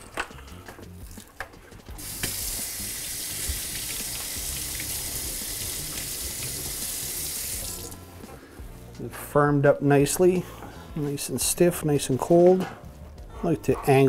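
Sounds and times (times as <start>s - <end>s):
faucet running into steel sink: 2.0s - 8.0s.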